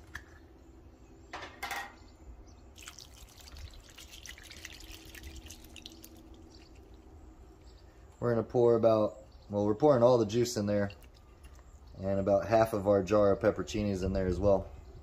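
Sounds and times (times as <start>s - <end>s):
liquid pouring and trickling: 2.7s - 7.3s, 10.7s - 11.7s.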